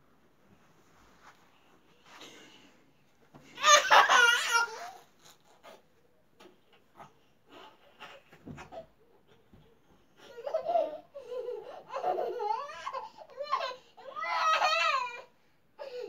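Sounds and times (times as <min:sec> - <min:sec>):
baby laughing: 0:03.6 - 0:05.1, 0:10.2 - 0:15.1.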